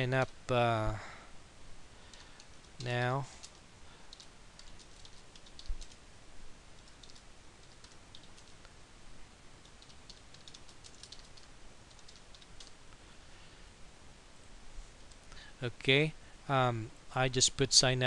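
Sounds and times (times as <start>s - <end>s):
computer keyboard typing: 2.1s - 6.0s, 6.8s - 8.6s, 9.6s - 12.8s.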